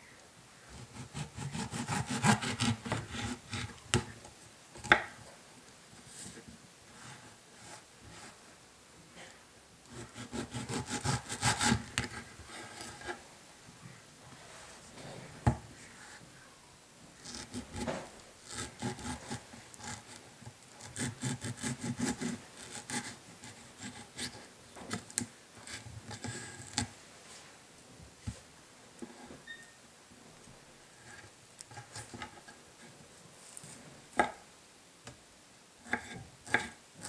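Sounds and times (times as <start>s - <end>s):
knife sawing through fruit: 0.8s - 3.7s, 10.0s - 12.1s
knife scraping on cutting board: 35.9s - 36.7s.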